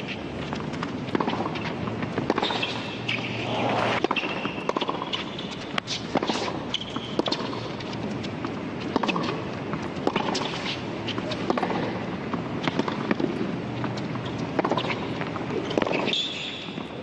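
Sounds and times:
background crowd noise: 0.0 - 4.7
tennis racket hitting ball: 0.5 - 16.2.

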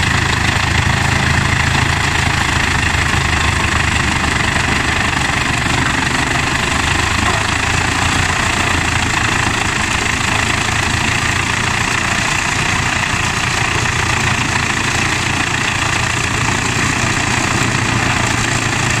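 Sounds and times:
tractor engine under load: 0.0 - 19.0
wood chipper chipping timber: 0.0 - 19.0.

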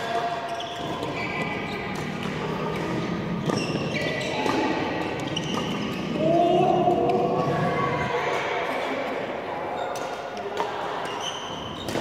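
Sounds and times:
racket hitting shuttlecock: 0.0 - 6.2, 11.8 - 12.0
shoes squeaking on court: 0.0 - 6.2, 11.0 - 12.0.

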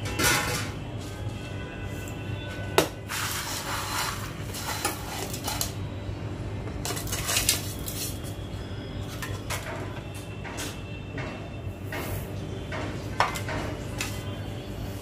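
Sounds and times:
plate scraping: 3.0 - 5.8, 6.8 - 8.2.

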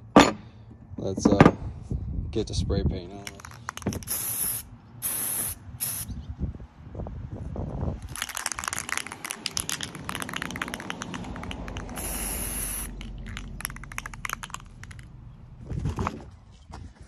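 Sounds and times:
spray can ball rattling: 3.2 - 6.1, 8.0 - 15.2
spray can hissing: 3.6 - 6.1, 8.2 - 15.0.

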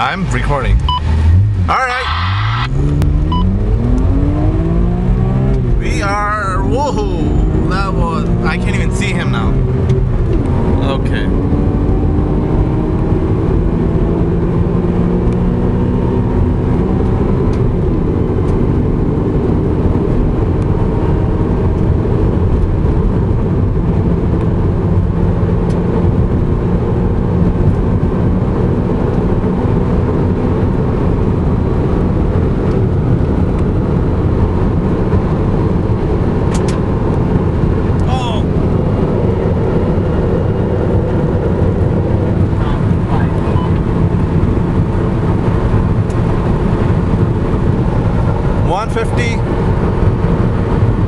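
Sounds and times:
car engine at high speed: 0.0 - 51.0
wind and road noise: 0.0 - 51.0.

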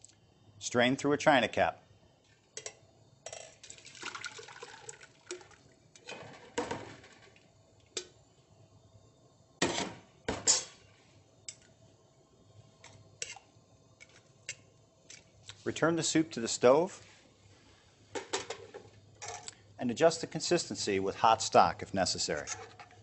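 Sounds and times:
thick soup pouring through strainer: 3.6 - 5.7.

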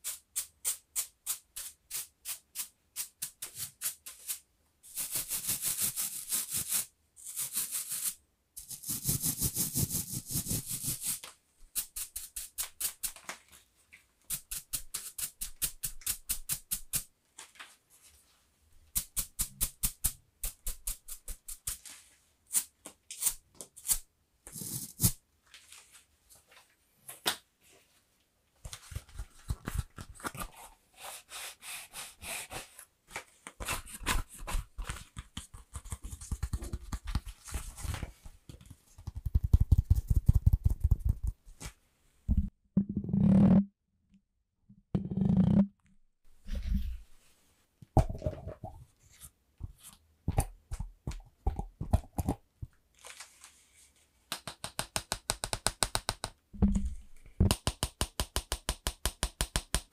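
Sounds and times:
scratchy brushing: 0.0 - 13.2, 14.3 - 17.0, 19.0 - 25.2.

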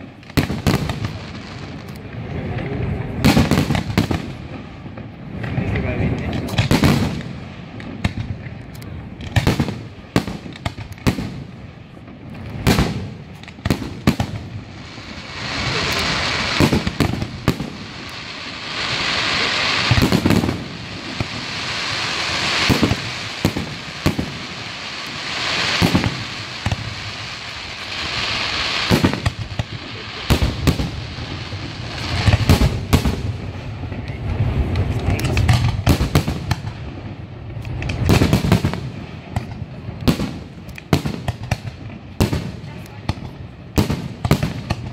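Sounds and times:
firework crackling: 0.0 - 44.9
firework shells bursting: 12.6 - 33.4.

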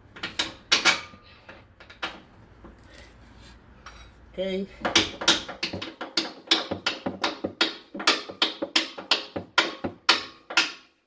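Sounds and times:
hammer tapping on metal: 4.8 - 10.9.

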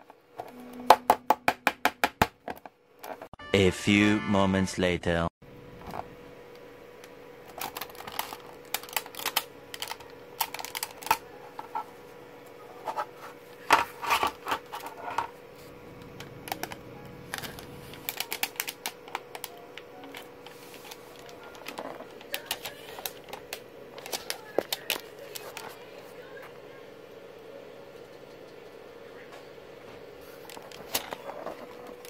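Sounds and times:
plastic clips snapping: 7.5 - 11.2, 16.0 - 25.6.

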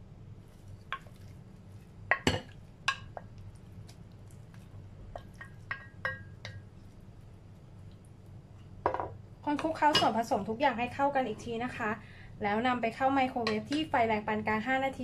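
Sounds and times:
dish and spoon clinking on bowl: 5.2 - 6.6.

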